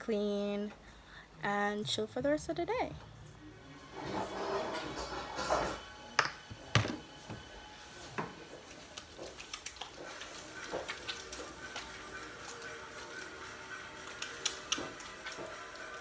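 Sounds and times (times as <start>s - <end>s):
background music: 9.8s - 16.0s.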